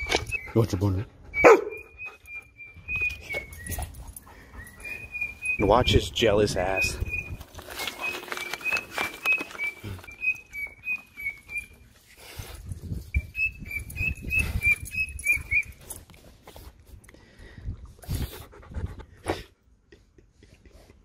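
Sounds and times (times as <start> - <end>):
dog whining in high squeaks: 1.3 - 5.9, 7.0 - 11.9, 13.2 - 16.0.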